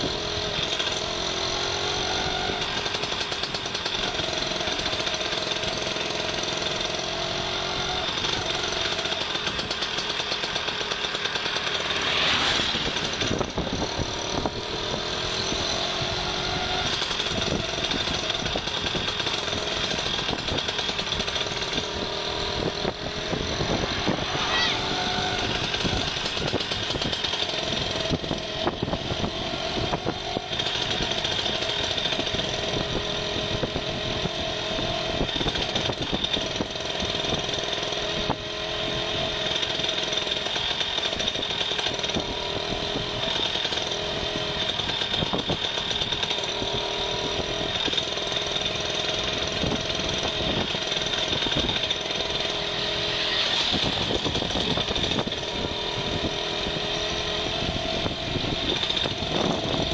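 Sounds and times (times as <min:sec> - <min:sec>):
vehicle engine running steadily: 0:00.0 - 0:59.9
wind rumbling on microphone: 0:12.3 - 0:37.6, 0:53.0 - 0:59.9.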